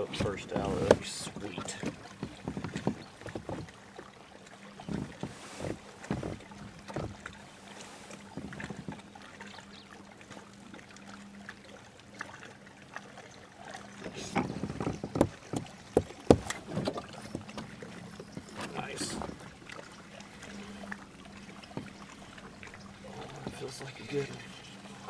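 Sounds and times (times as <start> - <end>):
knocks against kayak hull: 0.0 - 3.8, 4.8 - 7.4, 14.1 - 17.7
water lapping: 0.0 - 25.0.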